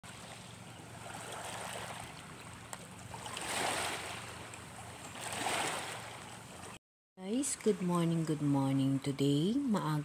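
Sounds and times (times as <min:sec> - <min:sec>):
waves washing over pebbles: 0:03.1 - 0:04.5, 0:05.2 - 0:06.2.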